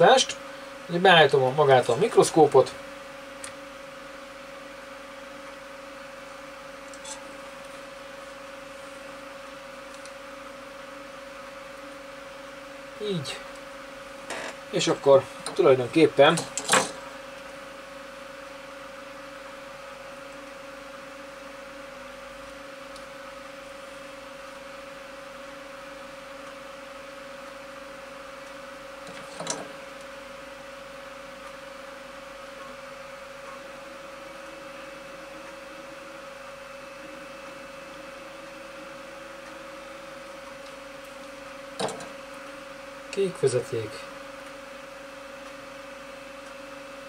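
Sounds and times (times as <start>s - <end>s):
mechanical whir with hum: 0.0s - 47.0s.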